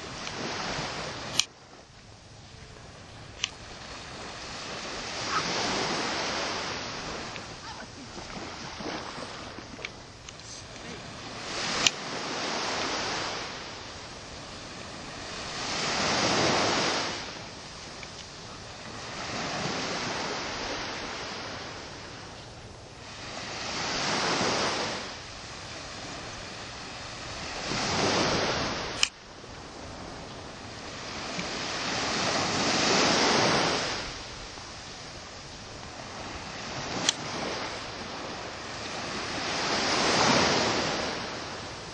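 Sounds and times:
small waves breaking on beach: 0:00.0 - 0:41.9
sharp click: 0:37.0 - 0:37.2.

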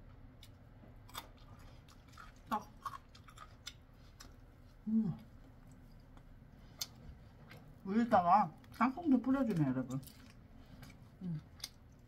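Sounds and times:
person chewing crunchy food: 0:00.0 - 0:07.8, 0:08.6 - 0:12.0.

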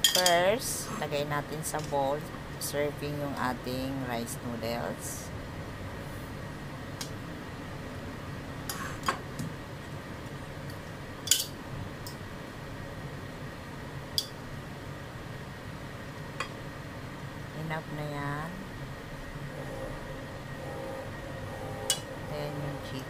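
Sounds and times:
metal tongs clicking on bowls: 0:00.0 - 0:00.5, 0:11.2 - 0:12.2
steady low hum: 0:00.0 - 0:23.0.

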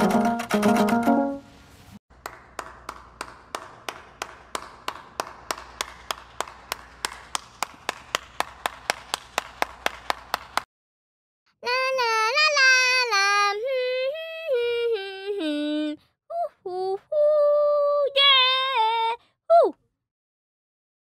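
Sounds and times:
person clapping slowly: 0:02.2 - 0:10.7.

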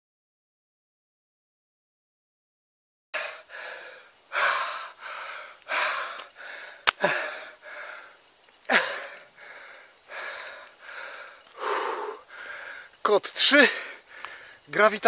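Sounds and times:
man panting heavily: 0:03.2 - 0:12.9, 0:13.6 - 0:14.7.

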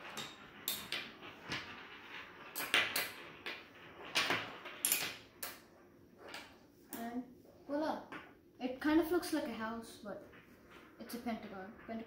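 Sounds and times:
toy pieces tapping on wooden table: 0:00.0 - 0:07.1
magnetic sticks snapping onto balls: 0:06.3 - 0:07.1.

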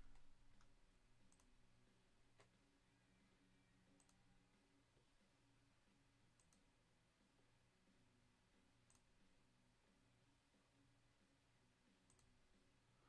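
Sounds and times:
faint low room hum: 0:00.0 - 0:13.0
computer mouse clicks: 0:01.3 - 0:01.5, 0:04.0 - 0:04.2, 0:06.3 - 0:06.7, 0:08.8 - 0:09.1, 0:12.1 - 0:12.3.

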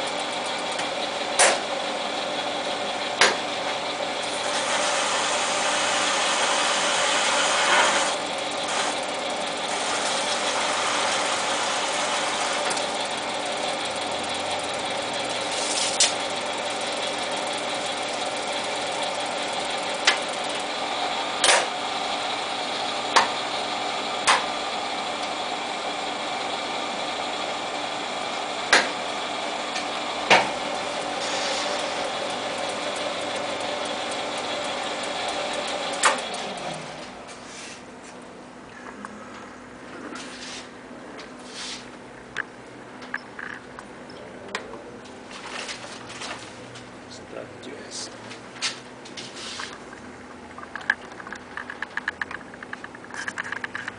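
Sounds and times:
lathe humming: 0:00.0 - 0:38.1.

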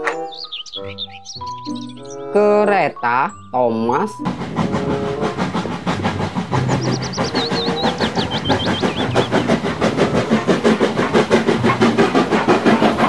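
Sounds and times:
bird chirping: 0:00.0 - 0:02.4, 0:06.5 - 0:10.0
steam locomotive chugging: 0:00.0 - 0:02.4, 0:03.4 - 0:13.0.

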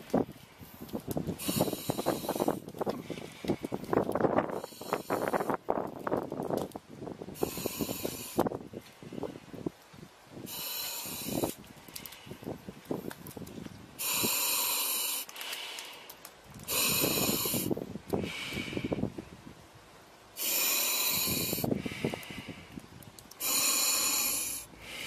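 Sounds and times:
rough low exhale sound: 0:00.5 - 0:05.6, 0:07.3 - 0:09.4, 0:10.4 - 0:12.6, 0:14.0 - 0:16.1, 0:16.7 - 0:19.2, 0:20.4 - 0:22.8, 0:23.4 - 0:25.0
regulator hissing inhales: 0:01.4 - 0:03.8, 0:04.5 - 0:05.6, 0:07.4 - 0:08.5, 0:10.4 - 0:12.4, 0:16.7 - 0:19.0, 0:20.4 - 0:22.8, 0:23.4 - 0:25.0.

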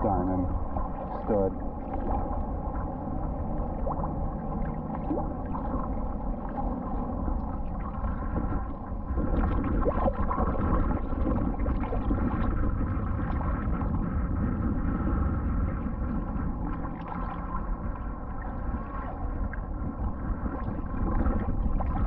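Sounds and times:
seawater sloshing and gurgling: 0:00.0 - 0:22.0.

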